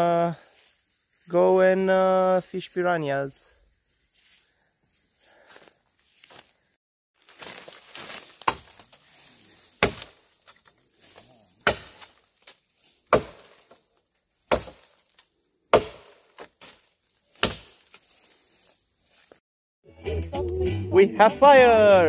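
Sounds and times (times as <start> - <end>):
high insect drone: 0.0 - 19.4
machete chopping wood: 8.1 - 8.9, 9.8 - 10.2, 11.6 - 13.8, 14.5 - 15.0, 15.7 - 17.9.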